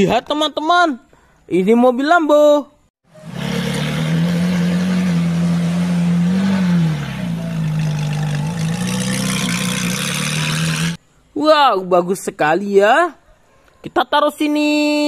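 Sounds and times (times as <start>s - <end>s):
sports car engine running: 3.2s - 11.0s.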